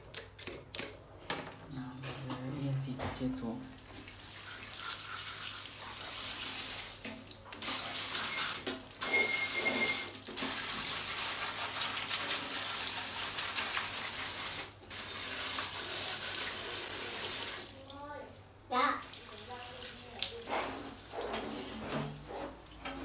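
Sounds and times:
water jet spraying on metal: 3.9s - 17.8s, 19.1s - 21.5s.

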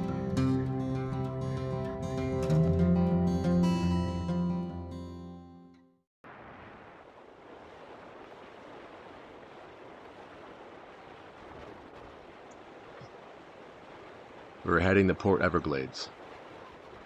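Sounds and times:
rushing sea water: 6.2s - 17.0s.

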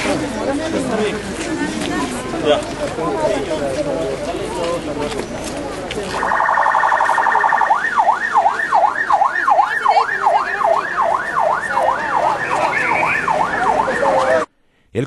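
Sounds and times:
ambulance siren: 6.2s - 14.5s.

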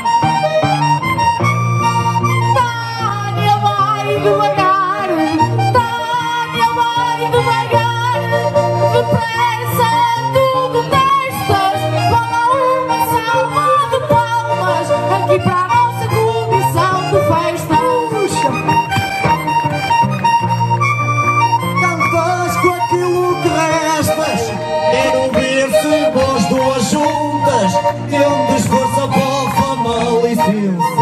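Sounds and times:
bass chords: 0.0s - 31.0s
button accordion folk melody: 0.0s - 31.0s
guitar accompaniment: 0.0s - 31.0s.

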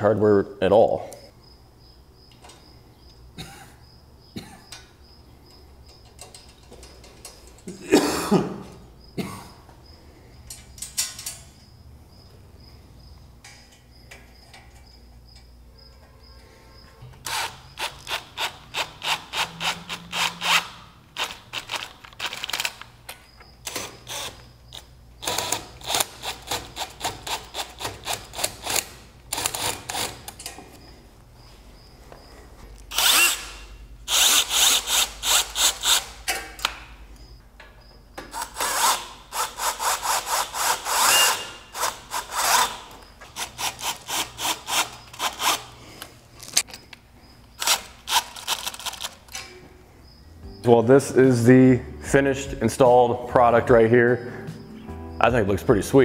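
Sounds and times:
ratchet wrench clicking: 17.2s - 22.8s.

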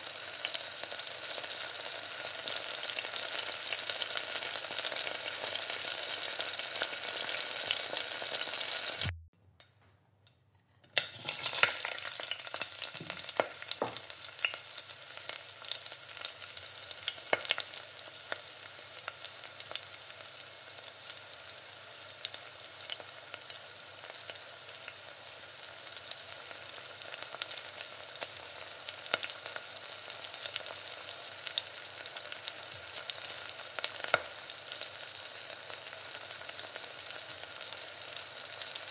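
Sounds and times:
vegetables sizzling in a pan: 0.0s - 9.2s, 11.0s - 38.9s.

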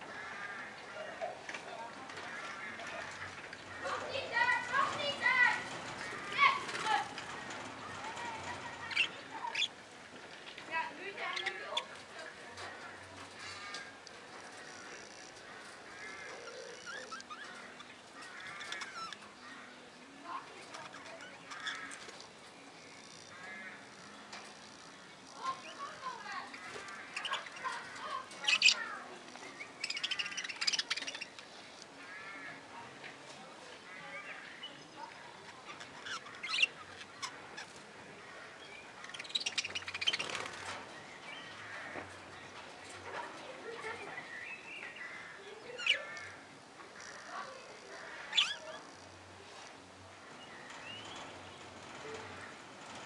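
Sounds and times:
budgerigars chattering and warbling: 2.2s - 9.8s, 11.2s - 19.7s, 20.3s - 32.4s, 34.2s - 43.2s, 43.8s - 49.3s.

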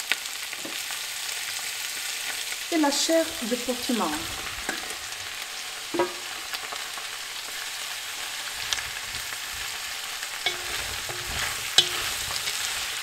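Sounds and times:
vegetables sizzling in hot oil: 0.0s - 13.0s
wooden spatula scraping metal bowl: 10.4s - 13.0s.

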